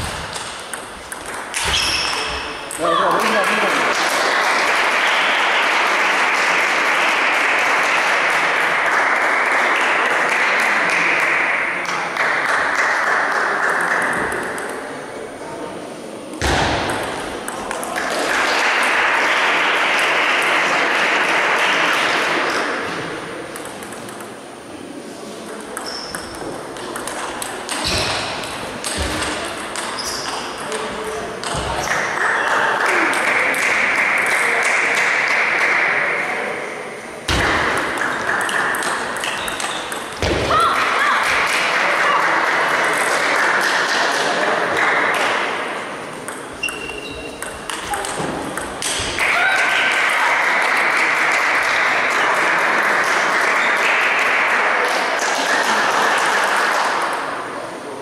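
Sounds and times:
ping pong ball clicking on table: 0.3s - 2.8s, 23.5s - 24.4s, 25.4s - 30.8s, 37.6s - 40.3s, 46.2s - 49.0s
spectators clapping and cheering: 3.0s - 14.6s, 17.2s - 23.0s, 31.9s - 36.5s, 37.3s - 45.8s, 47.7s - 57.6s.

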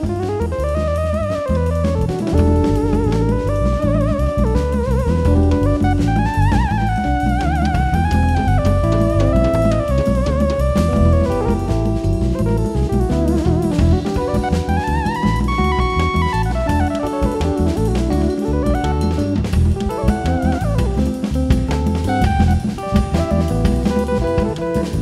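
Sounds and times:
drum kit: 0.0s - 25.0s
hand drums: 0.0s - 25.0s
keyboard fast melodic runs: 0.0s - 25.0s.

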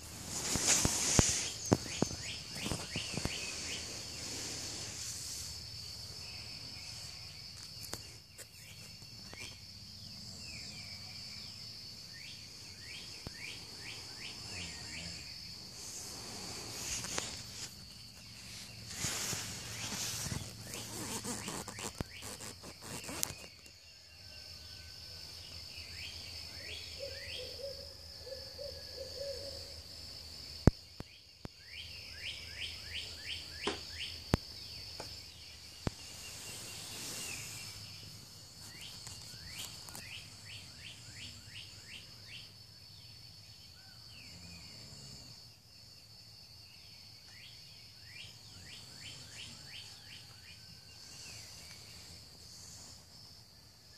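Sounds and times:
high-pitched insect drone: 0.2s - 25.3s.

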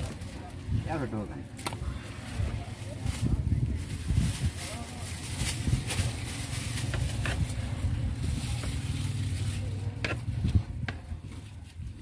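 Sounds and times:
low engine rumble: 0.0s - 12.0s
knife scraping fish backbone: 6.8s - 7.8s, 8.6s - 11.5s.

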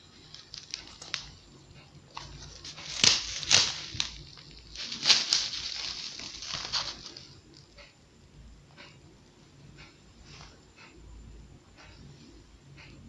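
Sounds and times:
plastic bottle of ice crackling: 0.3s - 1.3s, 2.2s - 7.2s.

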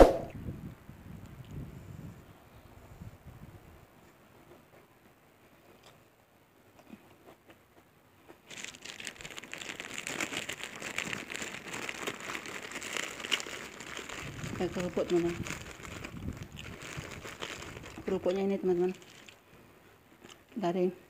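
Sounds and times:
crisp crackers breaking: 8.4s - 18.2s, 18.9s - 19.4s.

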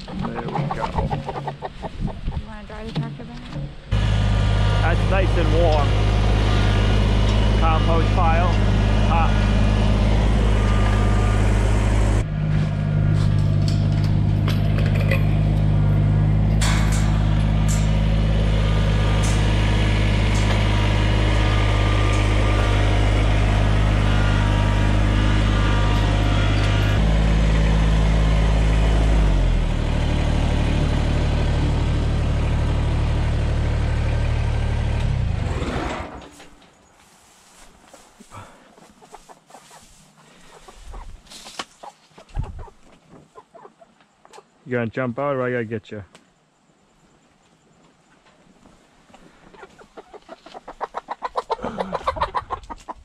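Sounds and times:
tractor diesel engine running: 0.0s - 39.2s.

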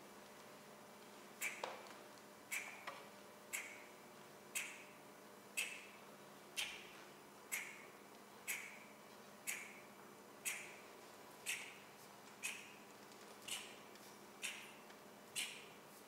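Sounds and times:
faint steady hum: 0.0s - 16.0s
clock-like ticking: 1.4s - 1.6s, 2.5s - 2.9s, 3.5s - 3.9s, 4.6s - 4.9s, 5.6s - 5.9s, 7.5s - 7.9s, 8.5s - 10.8s, 11.5s - 11.8s, 12.4s - 12.8s, 14.4s - 14.8s, 15.4s - 15.7s.

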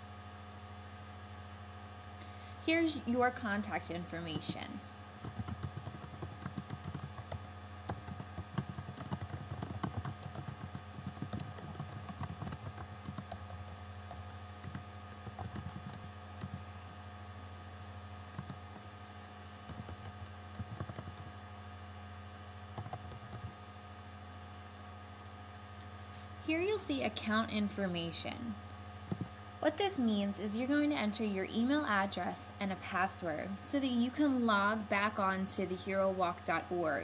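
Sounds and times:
steady low hum: 0.0s - 37.0s
keyboard typing: 5.2s - 16.6s, 18.3s - 18.8s, 19.6s - 21.3s, 22.8s - 23.6s.

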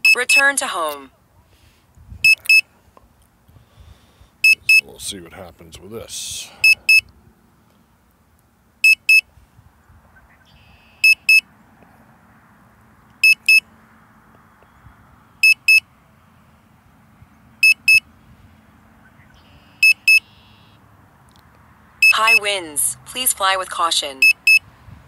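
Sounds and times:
remote controller double beeps: 2.2s - 2.6s, 11.0s - 11.4s, 13.2s - 13.6s, 15.4s - 15.8s, 17.6s - 18.0s, 19.8s - 20.5s, 22.0s - 22.5s, 24.2s - 24.6s.

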